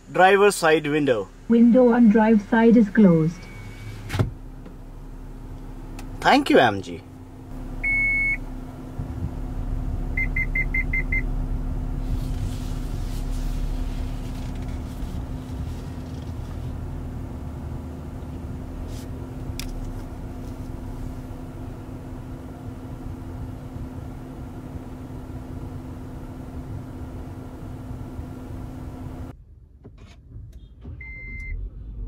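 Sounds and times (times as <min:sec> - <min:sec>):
car low hum: 0:00.0 - 0:32.0
parking-assist beeps: 0:02.2 - 0:04.1, 0:07.8 - 0:08.4, 0:10.2 - 0:11.3, 0:30.9 - 0:31.6.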